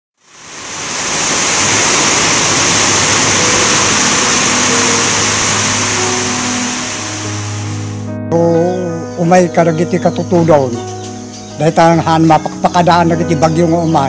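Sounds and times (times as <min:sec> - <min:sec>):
loud steady rushing noise: 0:00.3 - 0:07.8.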